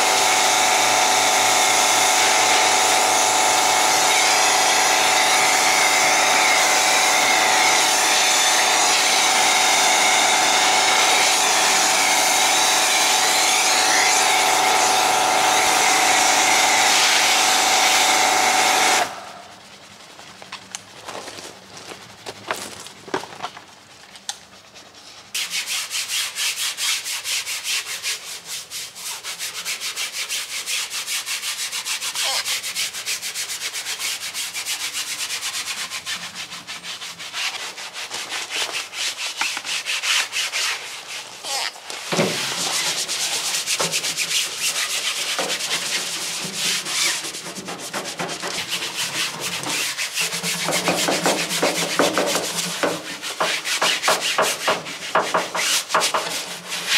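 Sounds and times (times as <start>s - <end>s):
brushes scrubbing car foam: 24.6s - 56.9s.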